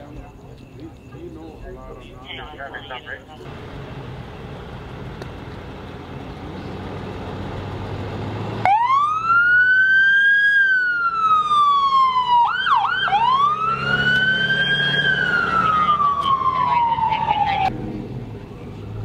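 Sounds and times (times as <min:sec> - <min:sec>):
vehicle engine rumble: 0:00.0 - 0:19.0
ambulance siren wailing and yelping: 0:08.6 - 0:17.7.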